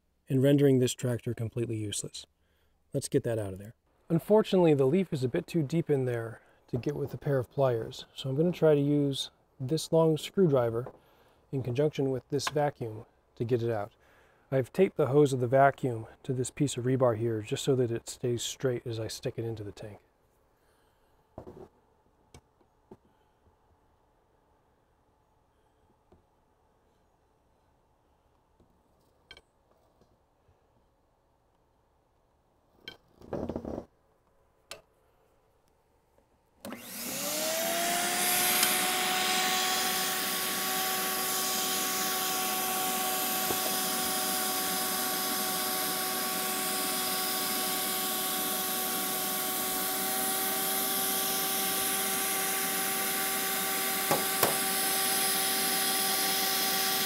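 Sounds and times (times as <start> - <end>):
vacuum cleaner motor whine: 36.7 - 57.0.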